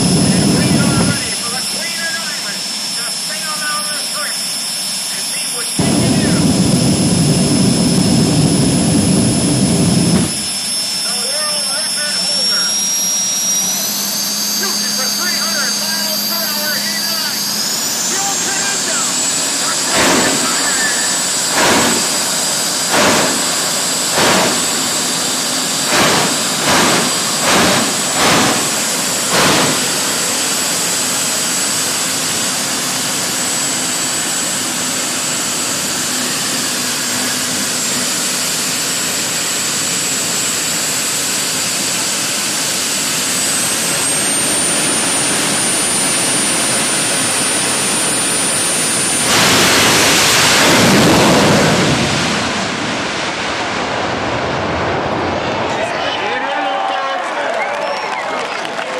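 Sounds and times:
jet turbine engine whine: 0.0s - 58.9s
afterburner blasts: 5.8s - 11.0s, 14.5s - 32.6s, 49.0s - 55.8s.

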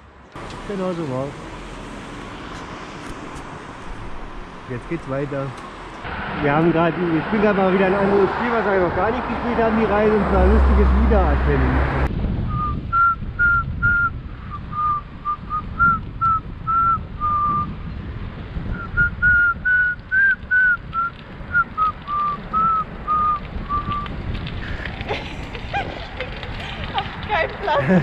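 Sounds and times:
wind and tyre rumble: 0.0s - 28.0s
person whistling: 12.5s - 17.7s, 18.8s - 24.0s.

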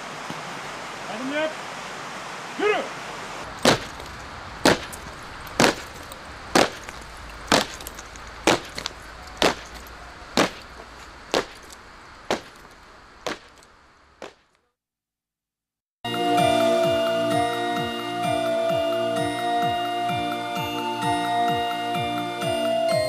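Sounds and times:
steady hiss: 0.0s - 14.6s
sharp knocks: 3.6s - 13.6s.

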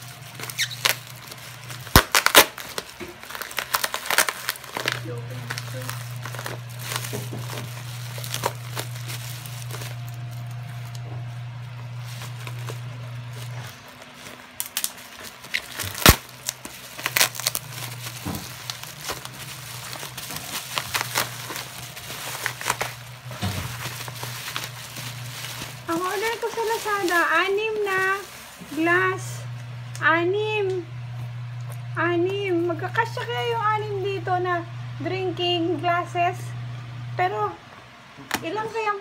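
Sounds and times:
bubble wrap crinkling: 0.0s - 29.9s
low hum: 3.3s - 37.6s.

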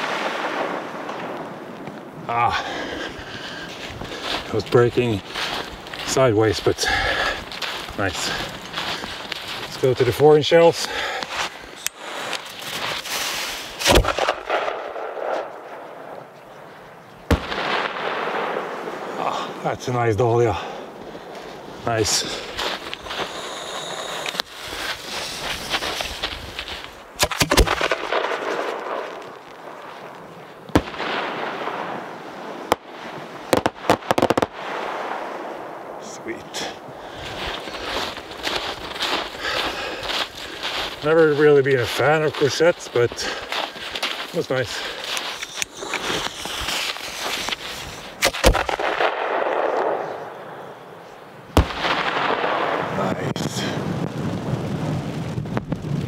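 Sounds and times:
footsteps crunching in snow: 1.2s - 14.5s, 20.8s - 30.8s, 36.3s - 49.0s
rapid firework cracks: 12.1s - 15.8s, 17.3s - 19.2s, 22.4s - 29.9s, 30.7s - 35.7s, 45.7s - 50.2s, 51.6s - 56.0s
firework mortar launch bangs: 13.1s - 15.4s, 17.3s - 18.8s, 48.2s - 50.2s, 51.6s - 53.7s
firework bursting bang: 17.3s - 18.7s, 51.6s - 52.9s
firework hiss: 22.4s - 26.4s, 45.4s - 48.5s
rushing hiss of rising shell: 23.0s - 25.5s.

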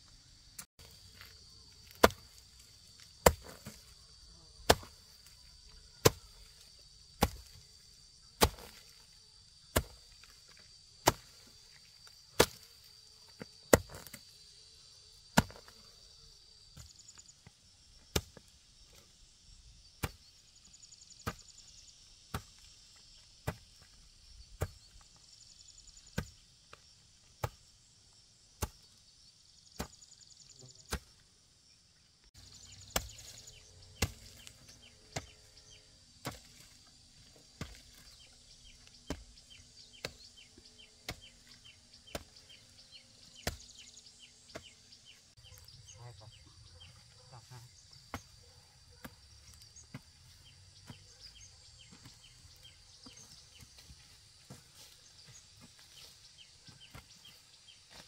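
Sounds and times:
insects trilling: 0.0s - 58.0s.

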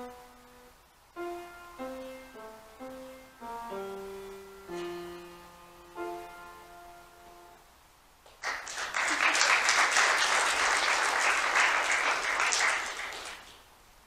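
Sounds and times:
instrumental chord ringing: 0.0s - 7.7s
congregation applauding: 8.3s - 13.7s.

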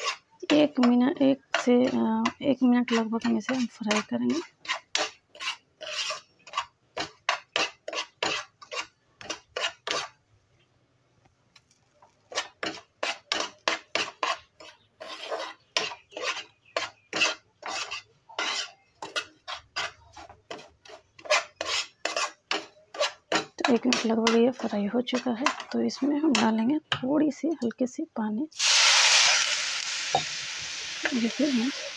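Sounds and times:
spatula scraping frying pan: 0.0s - 10.2s, 12.2s - 26.6s.

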